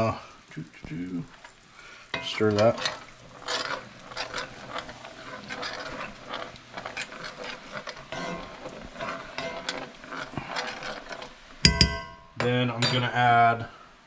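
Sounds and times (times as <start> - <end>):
sauce simmering: 0.0 - 12.0
utensil scraping and tapping pan: 2.1 - 13.1.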